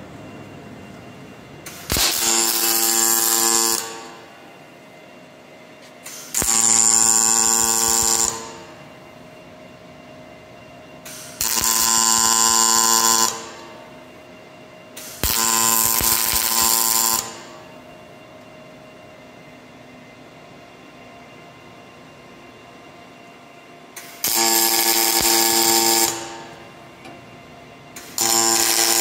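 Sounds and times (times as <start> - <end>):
welding arc buzzing hiss: 1.6 - 4.6, 5.8 - 9.1, 11.0 - 14.1, 14.9 - 17.8, 23.9 - 27.2, 27.9 - 29.0.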